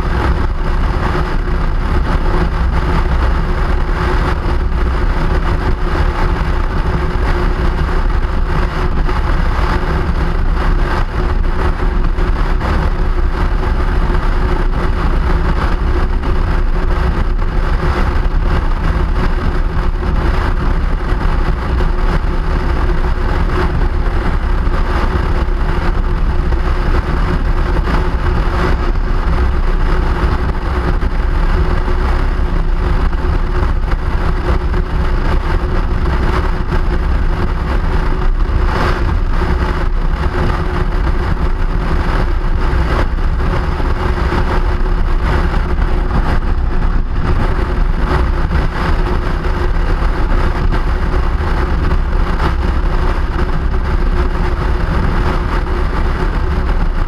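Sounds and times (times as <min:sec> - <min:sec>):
steady hum: 0:00.0 - 0:57.0
vehicle rumble: 0:00.0 - 0:57.0.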